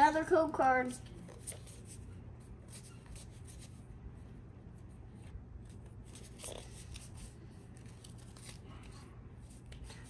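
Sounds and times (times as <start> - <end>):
trading cards rustling: 5.7 - 10.0.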